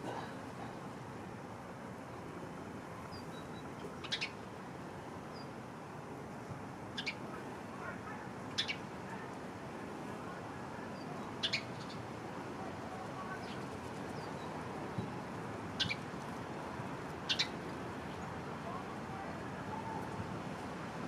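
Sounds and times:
birds chirping: 0:11.4 - 0:12.0, 0:17.3 - 0:17.6.

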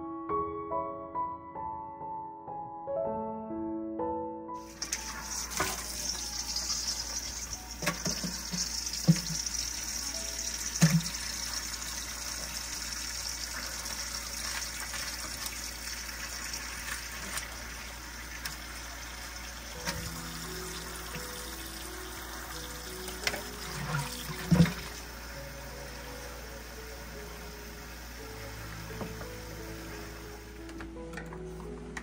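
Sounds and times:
tap water into metal bowl: 0:04.9 - 0:09.8, 0:10.7 - 0:11.6.

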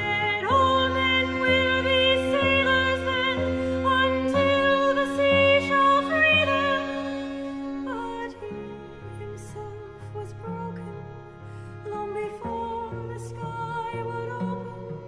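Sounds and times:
slow baroque string music: 0:00.0 - 0:15.0.

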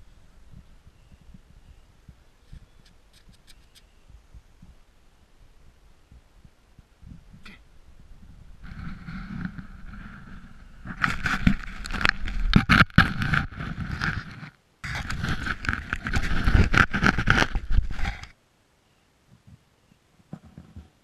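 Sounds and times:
snow scraping against camera: 0:08.2 - 0:18.4.

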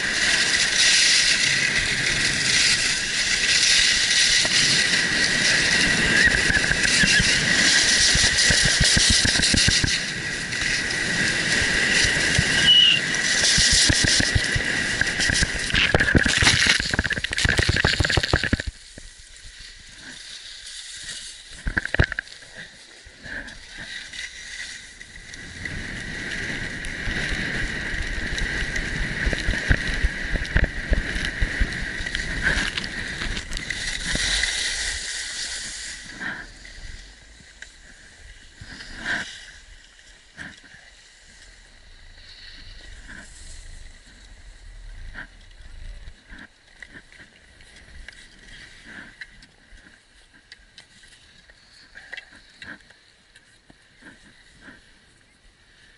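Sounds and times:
ski edges scraping snow: 0:00.0 - 0:17.0, 0:30.8 - 0:49.3
wind rushing on microphone: 0:00.0 - 0:18.7, 0:25.2 - 0:37.5
steady high whistle: 0:12.5 - 0:13.1.

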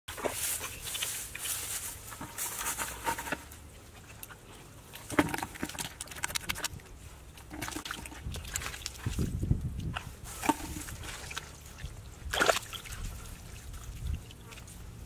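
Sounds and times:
hands rustling dry grass: 0:00.1 - 0:03.6
hands working in wet mud: 0:00.1 - 0:15.0.

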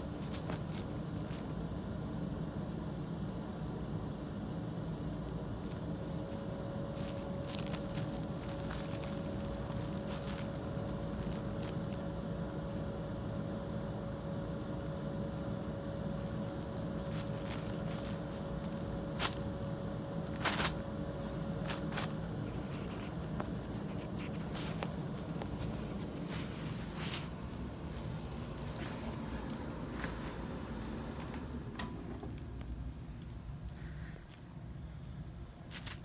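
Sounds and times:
sharp paper crackles: 0:00.0 - 0:01.6, 0:05.6 - 0:12.1, 0:16.2 - 0:19.5, 0:20.2 - 0:31.1, 0:35.7 - 0:36.0
cats crinkling paper sheet: 0:00.0 - 0:01.7, 0:05.6 - 0:12.8, 0:16.1 - 0:19.6, 0:20.2 - 0:31.2, 0:35.6 - 0:36.0
steady low hum: 0:00.0 - 0:36.0.

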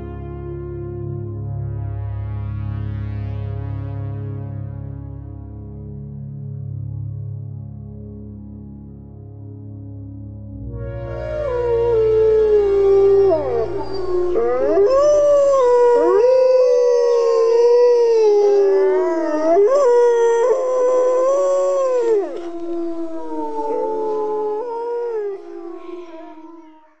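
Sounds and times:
low music drone: 0:00.0 - 0:27.0
wolves howling: 0:10.9 - 0:26.9.

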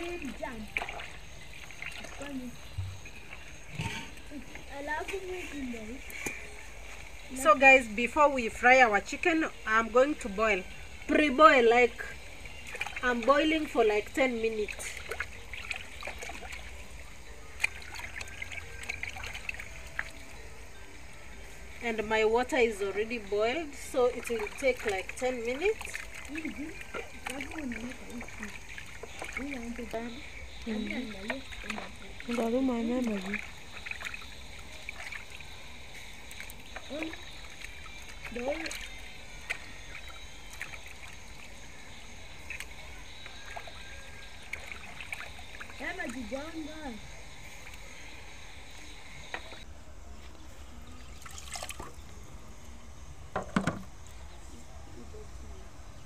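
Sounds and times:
short splashes and knocks: 0:00.0 - 0:05.2, 0:12.0 - 0:16.9, 0:17.6 - 0:20.3, 0:24.1 - 0:35.6, 0:36.3 - 0:41.5, 0:42.4 - 0:46.5, 0:51.2 - 0:52.0
water sloshing in a plastic basin: 0:00.0 - 0:49.6, 0:50.9 - 0:52.3.

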